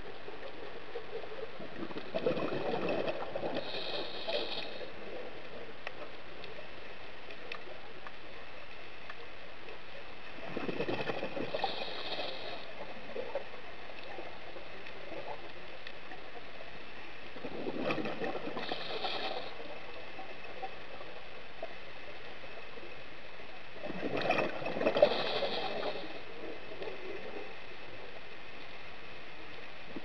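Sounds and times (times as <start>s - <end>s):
steady underwater hiss: 0.0s - 30.0s
exhaled air bubbling: 1.2s - 5.4s, 10.3s - 15.6s, 17.3s - 21.0s, 23.8s - 27.6s
regulator inhale hiss: 3.5s - 5.0s, 11.5s - 12.8s, 18.6s - 19.7s, 24.9s - 26.3s.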